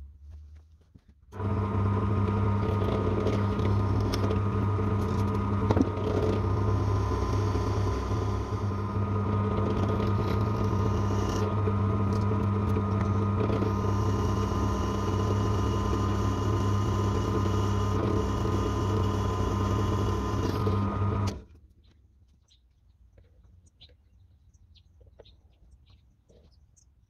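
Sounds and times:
drill press motor hum: 1.3 - 21.5
drill bit drilling through steel: 1.4 - 21.4.

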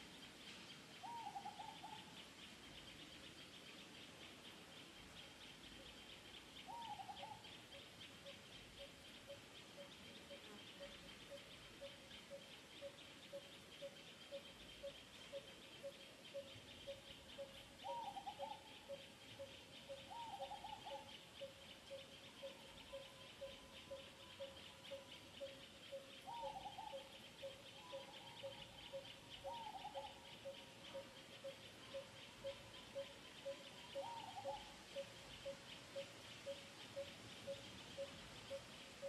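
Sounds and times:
wavering animal call: 13.3 - 38.6.

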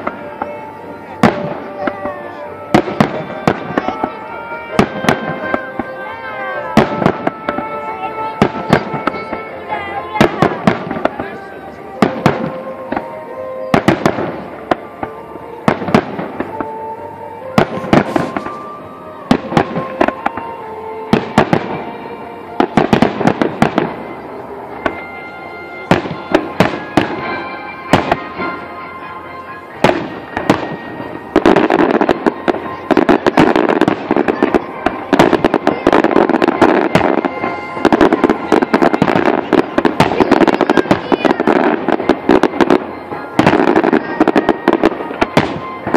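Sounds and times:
fireworks bangs: 0.0 - 45.9.

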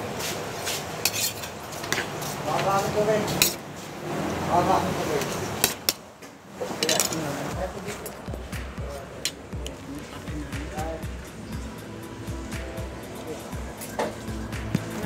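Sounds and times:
cutlery clinking on plates: 1.0 - 2.1, 3.3 - 3.6, 6.7 - 8.2.

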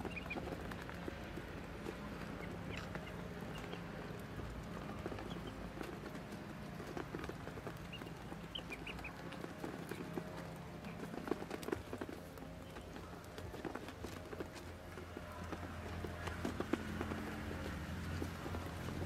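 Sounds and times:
duckling peeps: 0.0 - 0.5, 7.8 - 10.1
ducklings pecking at grain: 0.0 - 19.0.

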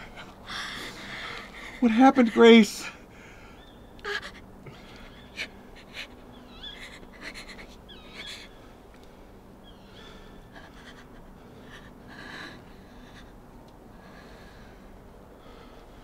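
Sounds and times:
woman gasping and panting: 4.0 - 8.6, 10.0 - 13.4.

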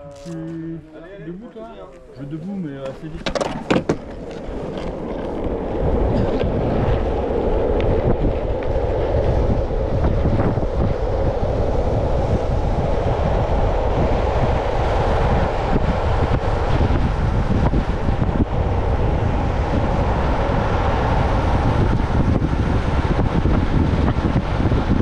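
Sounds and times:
wind rushing over microphone: 2.4 - 25.0
skateboard wheels rolling on asphalt: 2.8 - 25.0.

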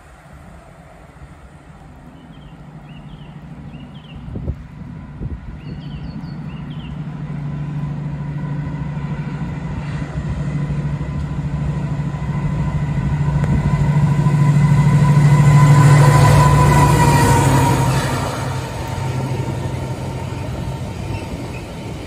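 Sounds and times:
diesel locomotive engine drone: 0.0 - 22.0.

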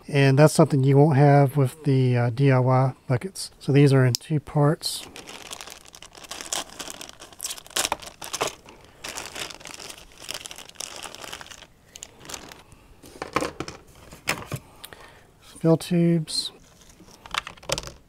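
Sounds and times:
plastic bag crinkling: 5.0 - 14.2.

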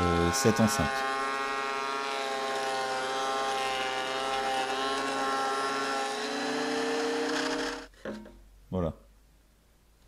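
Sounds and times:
thickness planer motor whine: 0.0 - 7.9.

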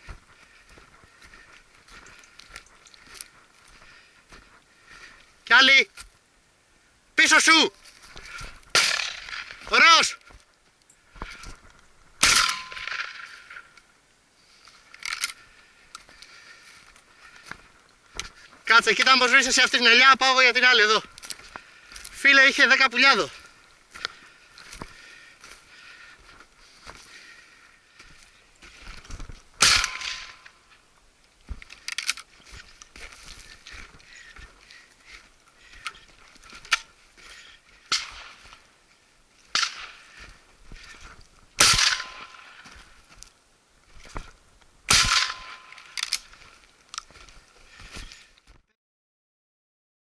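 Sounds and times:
shotgun shot: 8.7 - 9.7, 12.2 - 13.3, 29.6 - 30.4, 41.6 - 42.4, 44.9 - 45.6.

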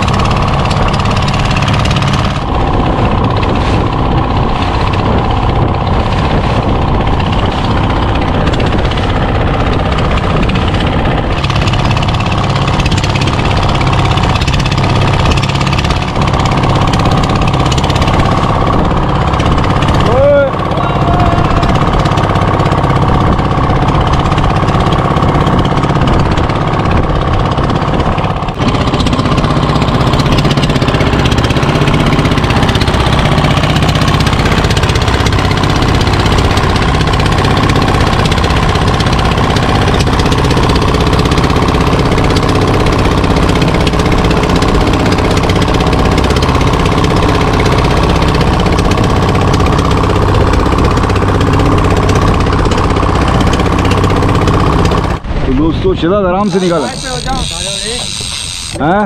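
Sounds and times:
boat diesel engine running: 0.0 - 59.0.

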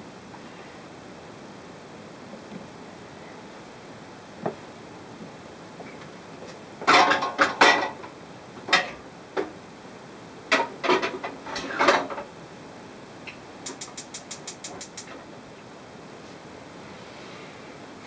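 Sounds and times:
kitchenware clattering: 6.8 - 8.0.

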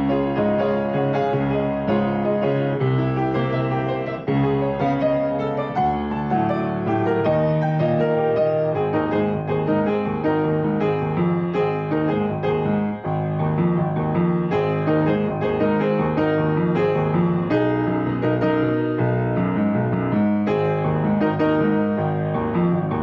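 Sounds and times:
grand piano playing: 0.0 - 23.0.

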